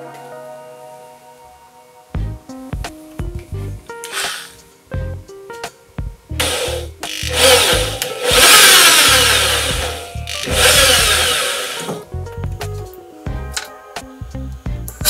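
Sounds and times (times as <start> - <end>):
background music: 0.0 - 15.0
electric drill boring into wood: 4.1 - 4.5, 6.4 - 12.0.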